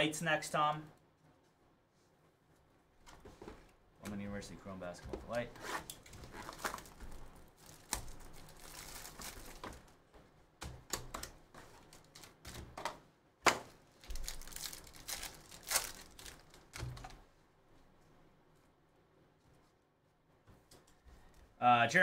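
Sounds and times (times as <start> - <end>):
plastic wrap crinkling and tearing: 6.0 - 10.0, 11.7 - 12.6, 13.9 - 17.2.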